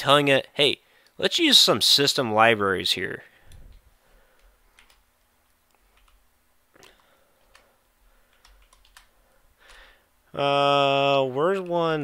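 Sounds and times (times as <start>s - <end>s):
computer keyboard keystrokes: 4.4s - 5.0s, 5.7s - 6.2s, 6.8s - 7.7s, 8.3s - 9.8s.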